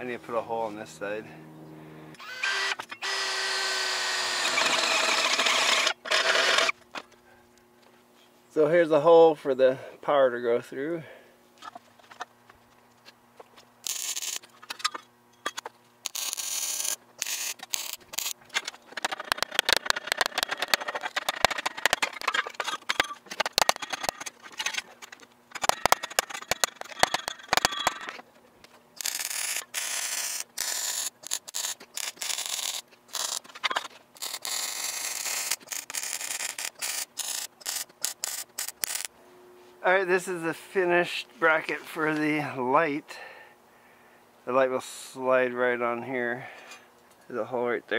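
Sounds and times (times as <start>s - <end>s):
welder arc crackling: 13.8s - 14.5s, 16.0s - 18.4s, 29.0s - 33.5s, 34.2s - 39.1s.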